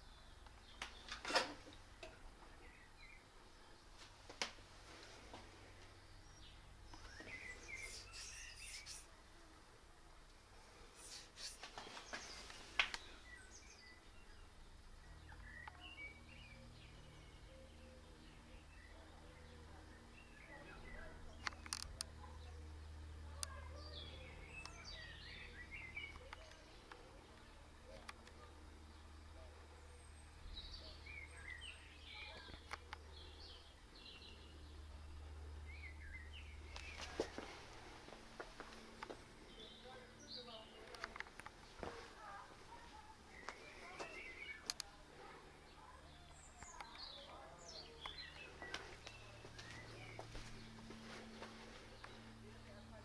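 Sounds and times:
low steady hum: 0:00.0 - 0:53.0
small birds chirping: 0:00.0 - 0:53.0
bird chirps: 0:06.2 - 0:09.2, 0:11.0 - 0:22.5
faint clicks: 0:44.6 - 0:44.9.

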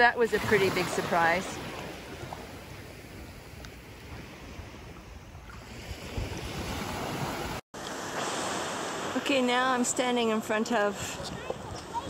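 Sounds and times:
small waves lapping on sand: 0:00.0 - 0:12.0
wind rumbling on microphone: 0:00.7 - 0:07.6, 0:10.9 - 0:12.0.

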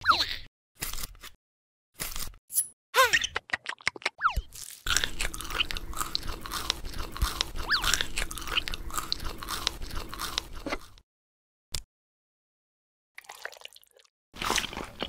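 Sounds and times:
crunchy chewing of crisp food: 0:00.8 - 0:01.4, 0:02.0 - 0:02.4, 0:04.5 - 0:11.0, 0:14.4 - 0:15.0.

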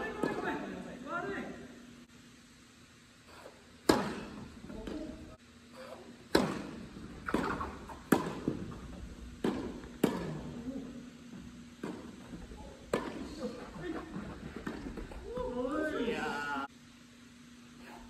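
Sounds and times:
rackets striking tennis ball: 0:00.1 - 0:00.6, 0:03.4 - 0:15.9
ball bouncing on hard court: 0:03.8 - 0:05.2, 0:05.8 - 0:15.8.

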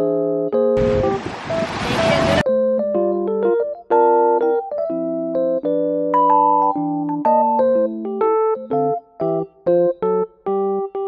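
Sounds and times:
light keyboard melody: 0:00.0 - 0:11.0.

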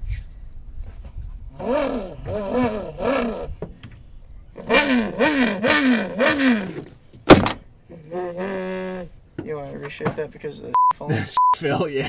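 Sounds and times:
man imitating engine revs: 0:01.5 - 0:03.6, 0:04.6 - 0:06.9, 0:07.9 - 0:09.2.

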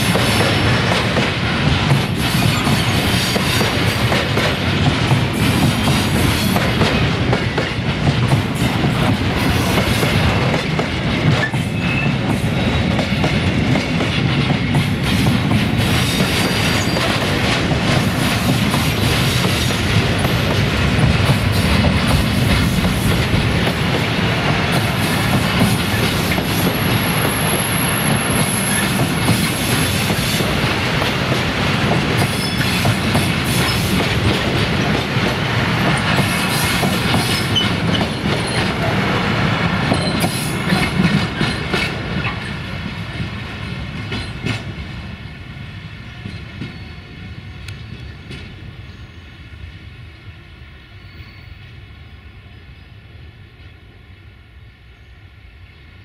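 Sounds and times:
train wheels clattering: 0:00.0 - 0:44.8
high wheel squeal: 0:11.6 - 0:12.2, 0:32.3 - 0:32.8.

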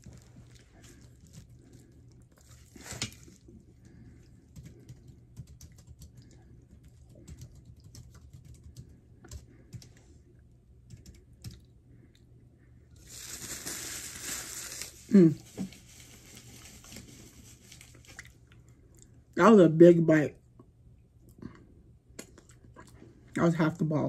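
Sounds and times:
crisp chewing crackles: 0:00.0 - 0:08.9, 0:13.0 - 0:19.2.

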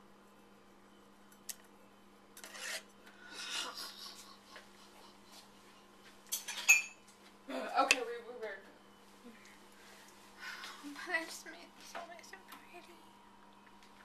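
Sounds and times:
spoon scraping in metal bowl: 0:02.4 - 0:03.0.

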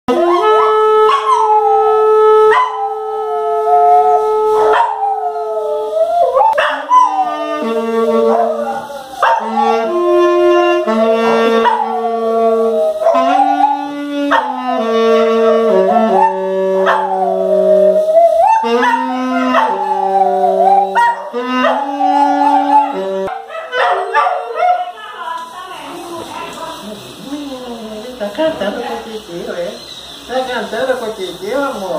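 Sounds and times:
saxophone slow melody: 0:00.1 - 0:23.4
dog howling: 0:00.1 - 0:25.1.

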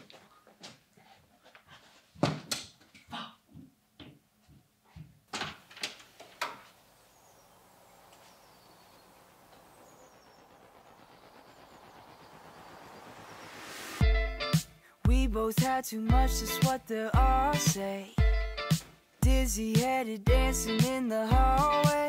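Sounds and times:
footsteps: 0:00.0 - 0:06.8, 0:14.1 - 0:19.4
smooth hiss: 0:06.6 - 0:15.0.

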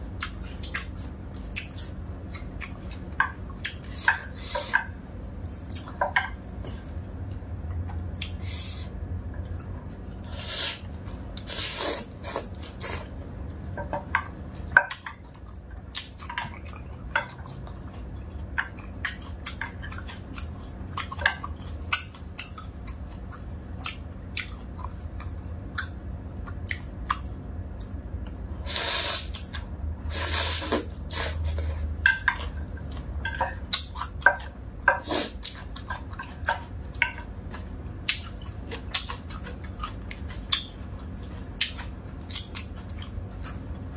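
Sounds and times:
person chewing noodles: 0:08.1 - 0:13.1, 0:14.5 - 0:27.9, 0:28.7 - 0:43.9.

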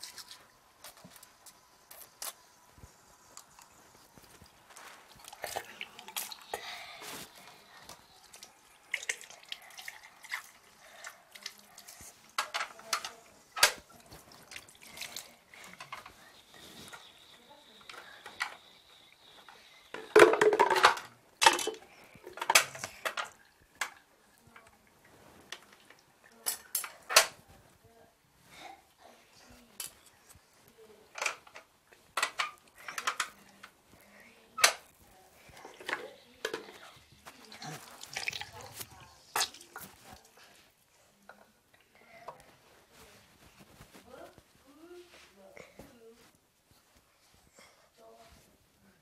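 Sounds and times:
water splashing and dripping: 0:00.0 - 0:01.1, 0:35.7 - 0:40.3
dishes clattering: 0:20.0 - 0:23.4.

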